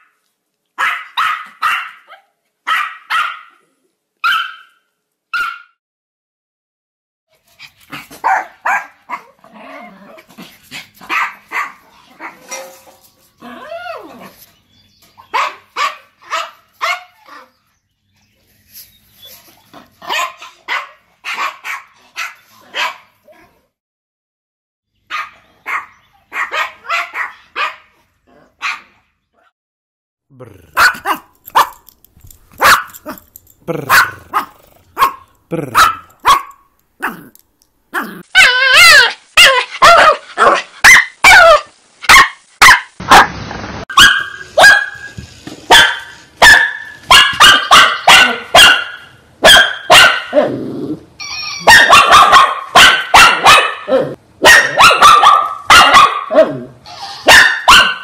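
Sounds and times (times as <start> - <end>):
small dog rapid barking: 0.8 - 3.5, 7.9 - 9.3, 11.0 - 12.4, 15.3 - 17.2, 20.0 - 23.1, 25.1 - 27.9, 28.6 - 28.9, 30.7 - 31.8, 32.6 - 33.2, 33.8 - 37.3, 38.0 - 43.3, 43.9 - 45.0, 45.7 - 50.4, 51.6 - 56.6, 57.2 - 58.0.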